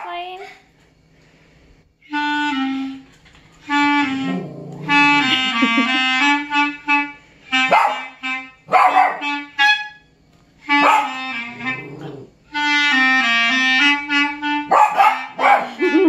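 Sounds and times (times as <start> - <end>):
clarinet playing: 2.0 - 16.0
small dogs barking: 7.7 - 8.1, 8.7 - 9.4, 10.7 - 11.2, 14.7 - 15.8.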